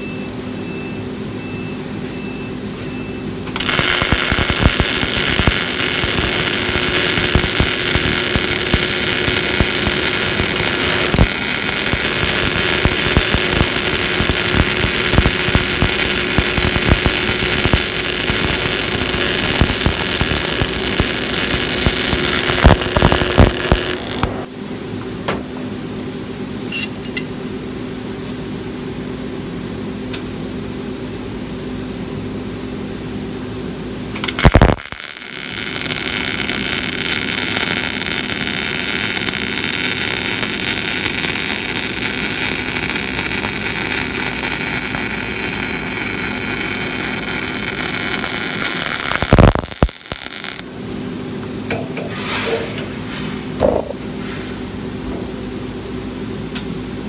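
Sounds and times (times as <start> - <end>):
steady low hum: 0.0 - 57.0
welding arc crackling hiss: 3.5 - 24.5, 34.2 - 50.7.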